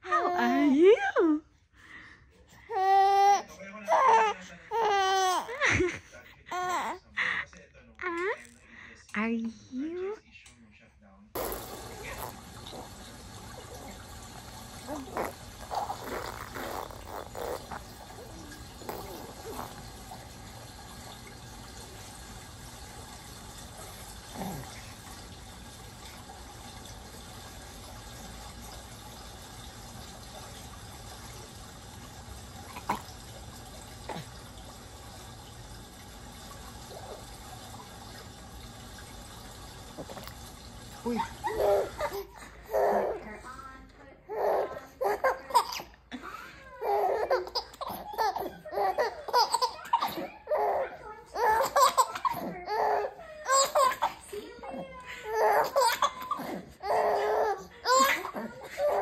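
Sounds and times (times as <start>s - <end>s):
baby cooing: 2.7s - 5.6s, 6.5s - 7.0s, 11.4s - 13.0s, 14.8s - 20.0s, 41.1s - 43.5s, 46.8s - 59.0s.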